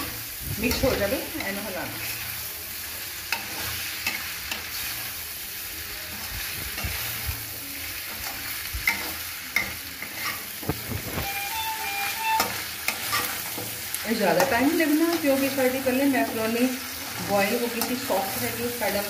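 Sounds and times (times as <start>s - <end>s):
pan sizzling: 0.0s - 19.0s
metal spoon scraping a pan: 3.2s - 5.2s, 8.0s - 11.4s, 12.0s - 19.0s.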